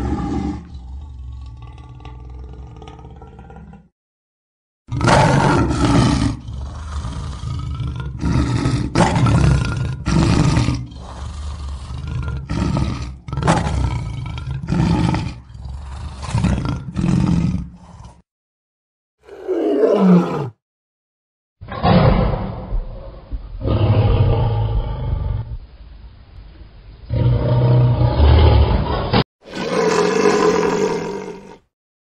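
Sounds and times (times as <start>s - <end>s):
lion roaring grunts: 4.9s - 18.2s.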